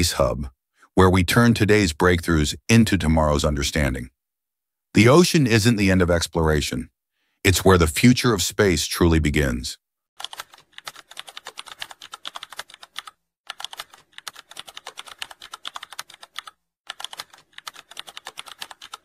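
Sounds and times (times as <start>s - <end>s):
keyboard typing clicks: 10.2s - 19.0s.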